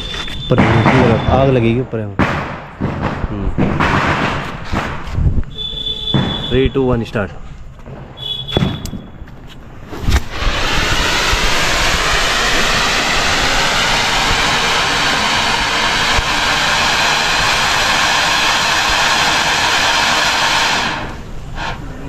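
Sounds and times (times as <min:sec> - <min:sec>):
fountain firework hissing: 0:09.8 - 0:22.0
firework pop: 0:09.9 - 0:10.6.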